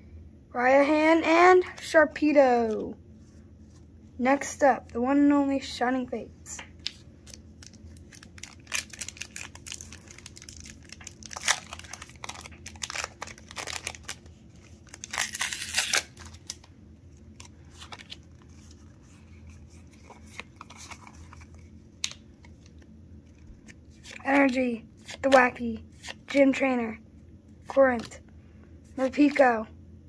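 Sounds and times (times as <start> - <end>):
cards rustling: 6.7 - 26.5, 27.6 - 28.2
foil wrapper tearing: 7.2 - 16.7.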